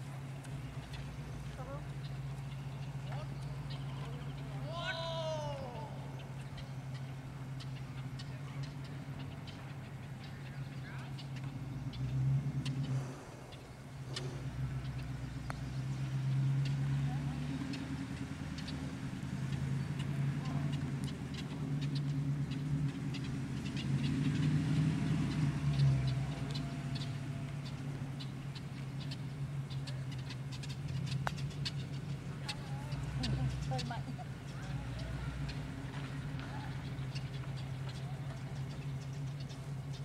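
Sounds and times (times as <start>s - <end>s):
low engine hum: 0.0s - 40.0s
faint ticks: 25.7s - 40.0s.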